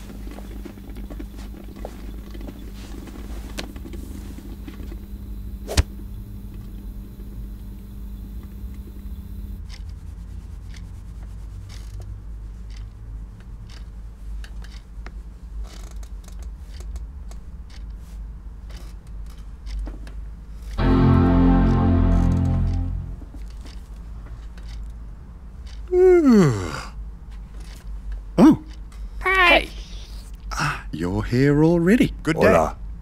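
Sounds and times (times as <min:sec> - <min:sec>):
small ticks and rustles: 0:00.0 - 0:05.2, 0:06.4 - 0:20.8, 0:23.5 - 0:25.9, 0:27.3 - 0:29.2
low hum: 0:20.8 - 0:23.5.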